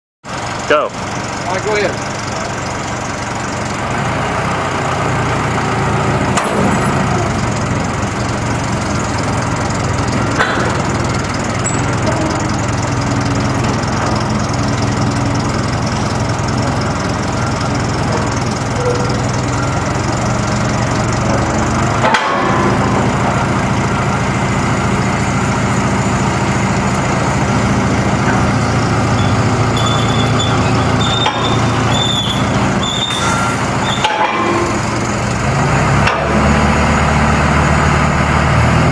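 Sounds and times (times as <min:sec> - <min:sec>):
heavy engine running: 0:00.2 - 0:38.9
sharp knocks: 0:10.3 - 0:11.0, 0:21.3 - 0:23.5, 0:33.9 - 0:35.0.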